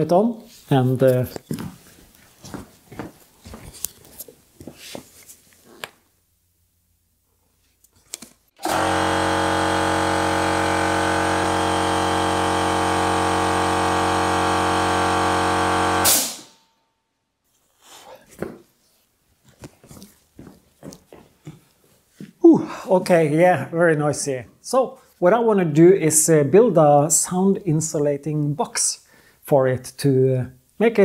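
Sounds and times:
air compressor running: 8.6s - 16.5s.

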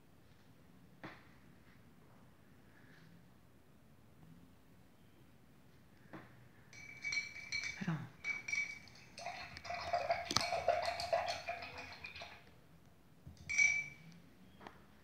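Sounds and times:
short ringing clink: 6.7s - 9.0s, 13.4s - 14.2s.

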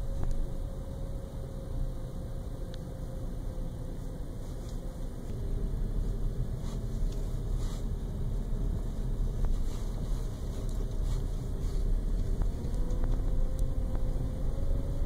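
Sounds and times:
road and engine rumble: 0.0s - 15.0s
wind noise: 5.3s - 15.0s.

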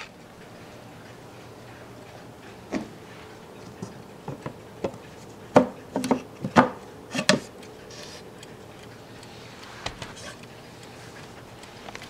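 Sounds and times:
wooden clock door knocks and clicks: 4.3s - 7.5s.

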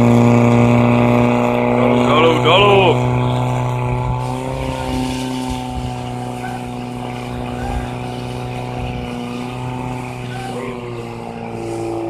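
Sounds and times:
pump engine running at high revs: 0.0s - 12.0s.

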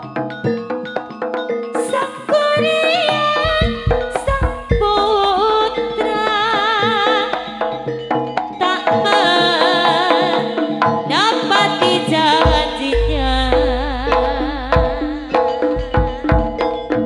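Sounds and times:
hand drums beating quick rhythm: 0.0s - 17.0s
wavering pitch melody: 0.0s - 17.0s
deep low held note: 13.0s - 15.9s.

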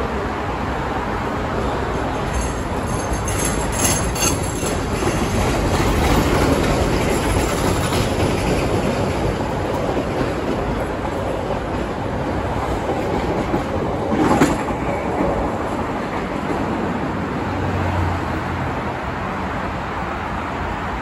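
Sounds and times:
train wheels clacking over rail joints: 1.9s - 16.8s.

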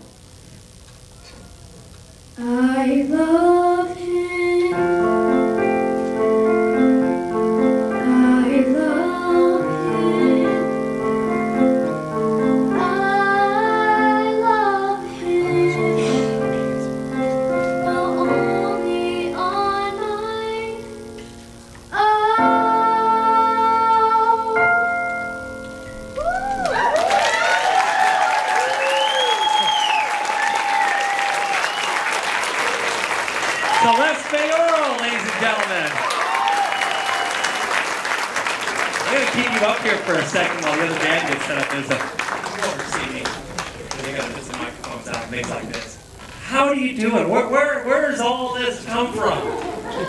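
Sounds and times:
girl singing into microphone: 2.4s - 5.5s, 7.9s - 11.1s, 12.4s - 25.4s
sustained keyboard chords: 3.6s - 26.8s.

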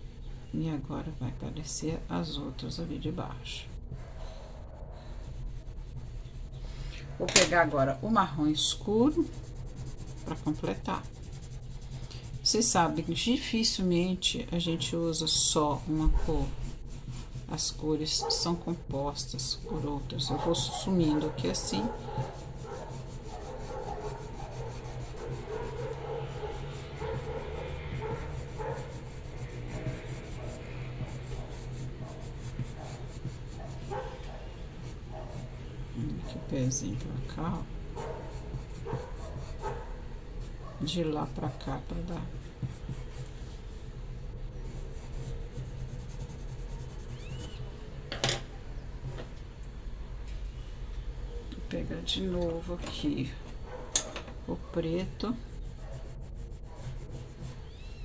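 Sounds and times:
steady low hum: 0.0s - 58.0s
pencil scratching on paper: 3.6s - 6.7s, 8.2s - 13.4s, 14.6s - 47.6s, 55.0s - 58.0s.

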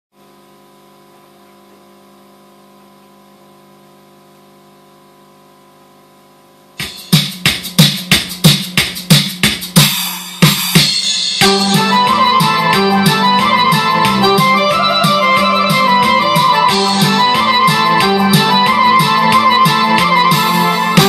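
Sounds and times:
electrical hum: 0.2s - 6.8s
keyboard drum-machine rhythm: 6.8s - 21.0s.

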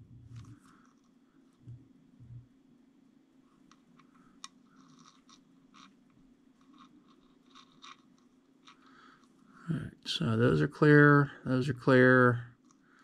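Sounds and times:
faint scratching and clicks: 0.0s - 2.5s, 3.4s - 9.8s, 11.7s - 13.0s
low steady hum: 0.0s - 13.0s.

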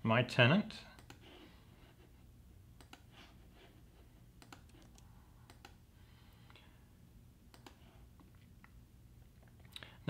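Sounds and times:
typing on laptop keyboard: 4.4s - 5.8s.

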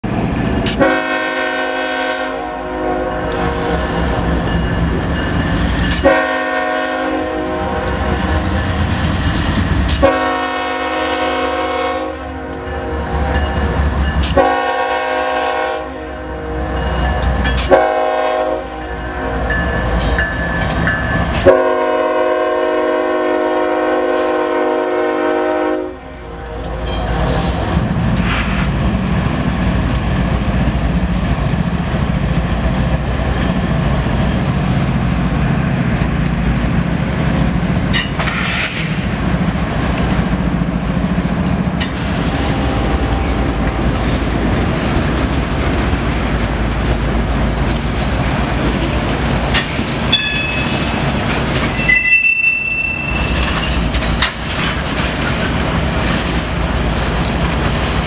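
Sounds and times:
diesel locomotive engine: 0.0s - 58.0s
freight train rumbling past: 0.0s - 58.0s
wheels clicking over rail joints: 29.0s - 38.7s, 43.0s - 52.2s, 53.1s - 58.0s
high wheel squeal: 51.7s - 53.8s.

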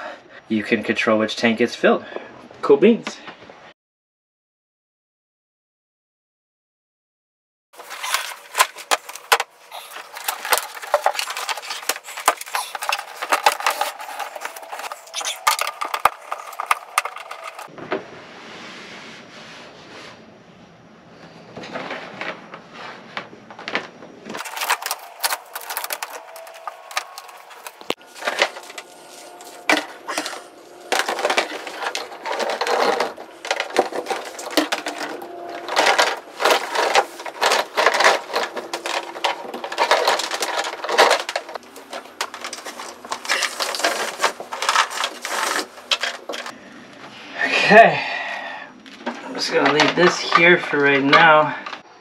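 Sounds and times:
cable rustling and knocking on wood: 7.8s - 18.0s, 23.2s - 46.5s.

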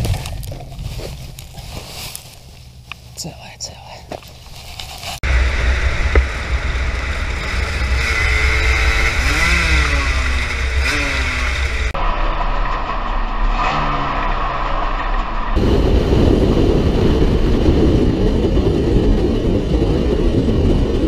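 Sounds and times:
wind rumble on microphone: 0.0s - 3.6s, 14.8s - 21.0s
motorcycle engine at speed: 4.6s - 21.0s.

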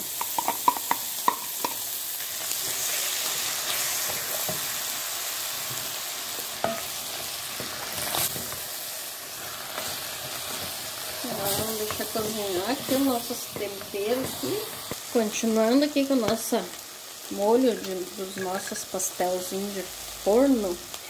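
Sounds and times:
meat and vegetables sizzling: 0.0s - 21.0s
spoon knocking against pan: 0.2s - 1.8s.

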